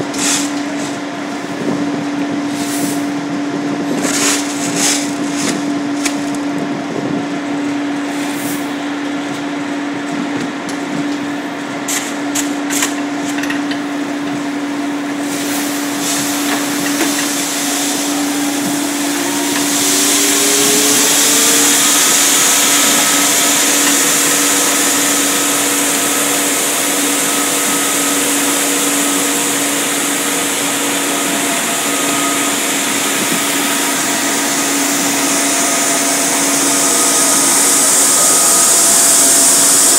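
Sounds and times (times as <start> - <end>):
grain machinery humming: 0.0 - 39.9
loud hiss: 15.2 - 39.9.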